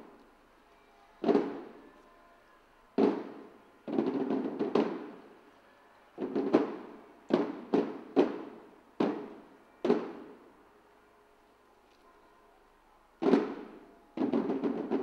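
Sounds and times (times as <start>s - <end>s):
drum roll: 3.0s - 5.2s, 6.2s - 10.2s, 13.2s - 15.0s
drum strikes: 3.0s - 5.2s.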